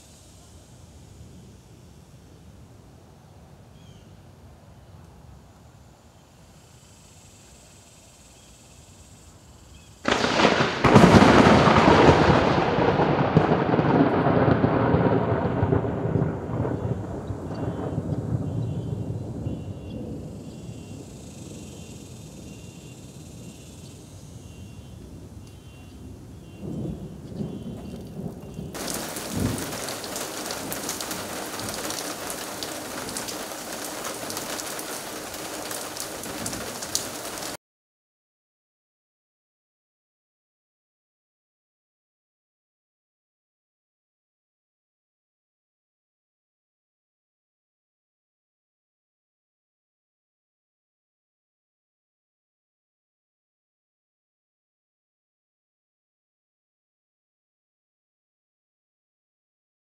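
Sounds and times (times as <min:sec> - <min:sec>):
faint cicada buzz: 0:00.0 - 0:10.6, 0:17.6 - 0:37.5
rain falling on street and lawn: 0:09.2 - 0:23.1, 0:23.7 - 0:37.6
thunder cracks and rumbling: 0:10.1 - 0:22.5, 0:26.0 - 0:37.6.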